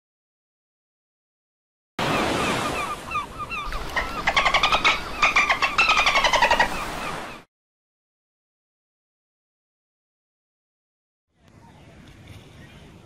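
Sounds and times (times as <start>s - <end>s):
dolphin chirps: 2.4s - 7.0s.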